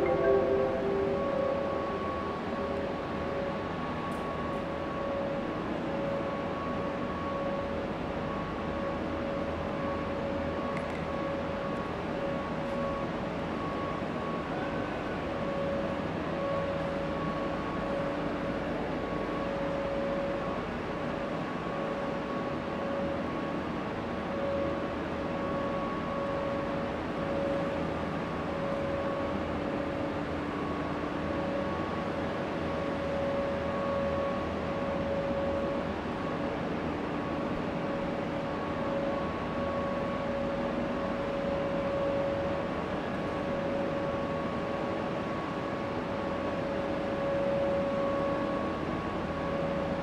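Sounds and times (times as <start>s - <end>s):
mid-pitched tone: 0.0s - 3.7s
faint higher tone: 0.0s - 4.5s
machinery hiss and hum: 0.0s - 6.4s
faint higher hum: 0.0s - 50.0s.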